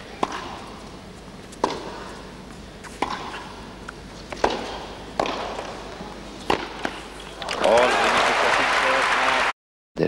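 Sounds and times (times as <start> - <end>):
tennis racket hitting ball: 0.2 - 0.8, 1.6 - 2.2, 2.8 - 3.6, 4.2 - 7.1
crowd hum in indoor arena: 5.5 - 9.5.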